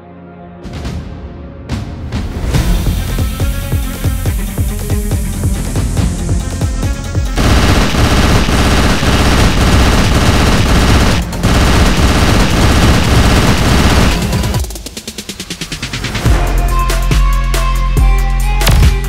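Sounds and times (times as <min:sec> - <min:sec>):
machine-gun fire: 0:07.4 - 0:14.8
music with pulsing beat: 0:13.0 - 0:19.0.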